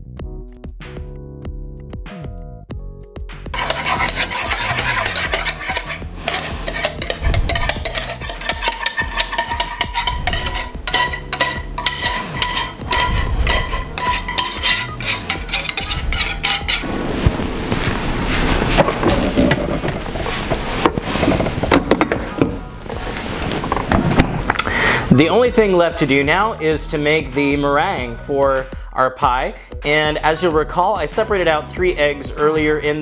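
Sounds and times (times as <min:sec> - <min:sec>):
whisk scraping metal saucepan: 0:03.6 - 0:16.9, 0:18.2 - 0:21.7.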